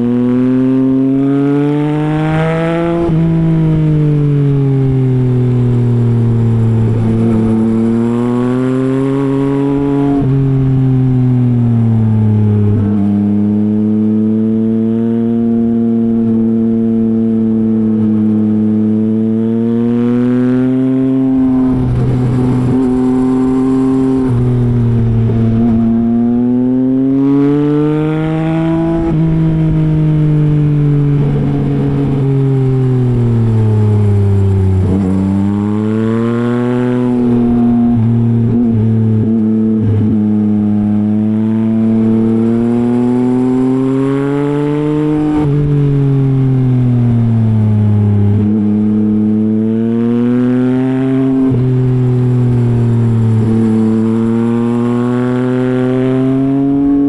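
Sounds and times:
motorcycle engine revving: 0:00.0 - 0:57.0
gear changes: 0:20.5 - 0:26.1, 0:51.1 - 0:57.0.

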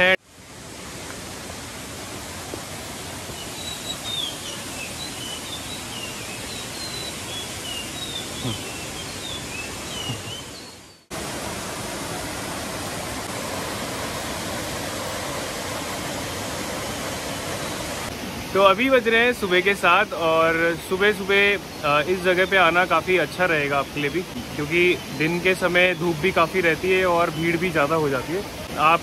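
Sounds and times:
stream rushing over boulders: 0:00.0 - 0:29.0
small birds chirping: 0:03.0 - 0:11.1, 0:21.1 - 0:28.8.

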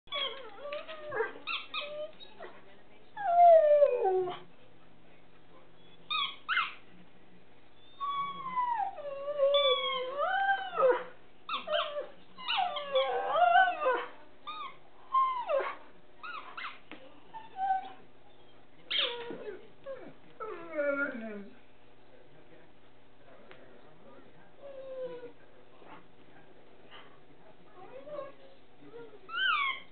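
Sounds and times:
dog howling and whining: 0:00.1 - 0:02.4, 0:03.2 - 0:04.4, 0:07.8 - 0:21.5, 0:24.6 - 0:25.4, 0:27.8 - 0:29.9.

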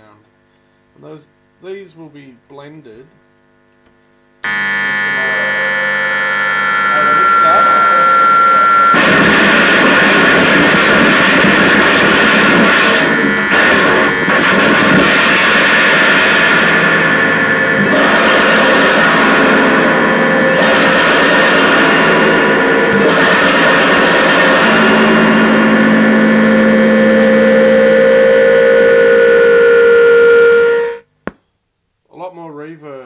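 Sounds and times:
steady low tone: 0:04.4 - 0:09.0
grinding feedback noise: 0:04.4 - 0:31.0
ringing tones: 0:17.8 - 0:19.7, 0:20.4 - 0:22.2, 0:22.9 - 0:25.2.

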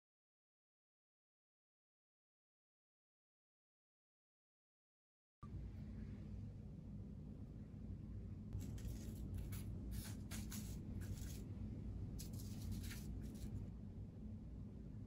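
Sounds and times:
low steady hum: 0:05.4 - 0:15.0.

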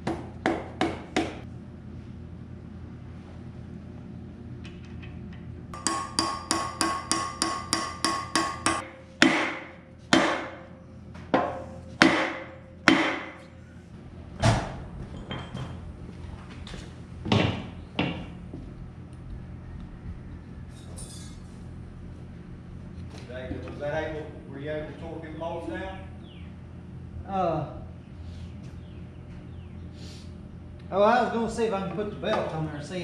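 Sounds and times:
hammer striking wooden block: 0:05.8 - 0:10.6, 0:11.4 - 0:13.4.

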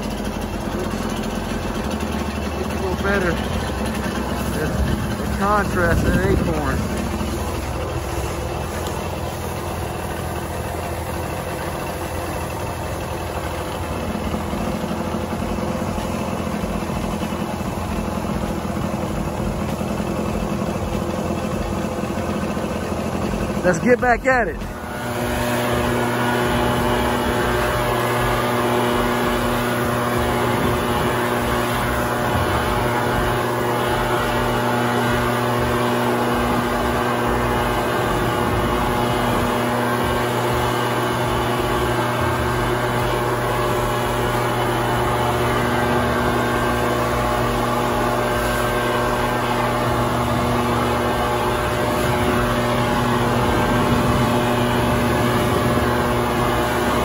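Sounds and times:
leaf blower running: 0:00.0 - 0:57.0
acorns and dirt blown across ground: 0:24.6 - 0:57.0.

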